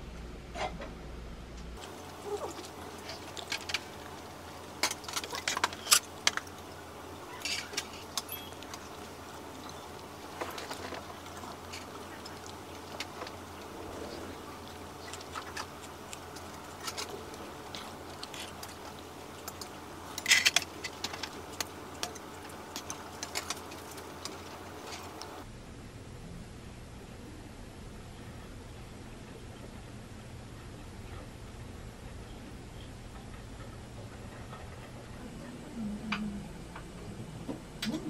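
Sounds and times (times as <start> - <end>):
low hum: 0.0 - 38.0
metal utensils clinking on bowls: 7.4 - 9.0.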